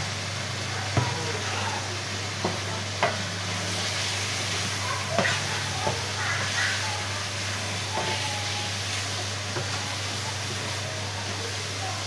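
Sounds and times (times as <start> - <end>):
chicken sizzling in a pan: 0.0 - 12.0
wooden spatula knocking pan: 5.0 - 6.8.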